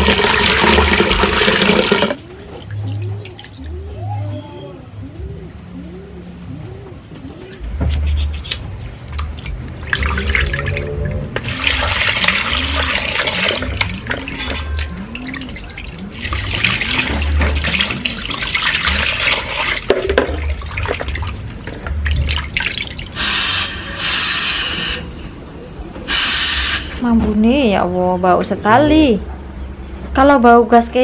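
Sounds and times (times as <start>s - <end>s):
gas hissing from cylinder valve: 23.2s - 27.0s.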